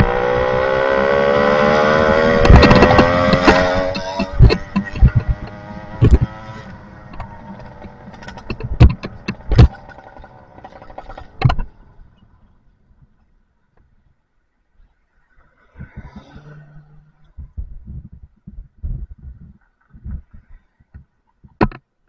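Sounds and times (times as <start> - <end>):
low rolling rumble: 1.7 - 13.3
sharp knocks and rattles: 2.1 - 12.4.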